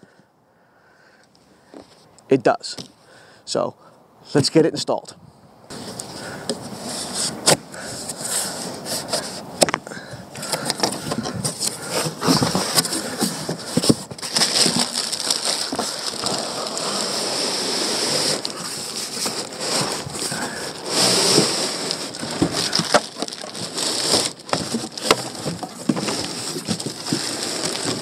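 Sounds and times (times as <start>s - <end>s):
cardboard box and plastic rustling: 5.7s - 28.0s.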